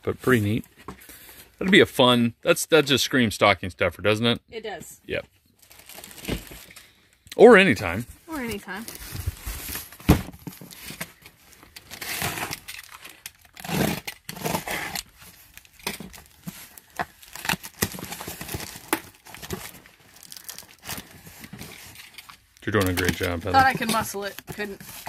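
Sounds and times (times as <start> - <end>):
tape scraping and tearing: 8.3 - 25.0.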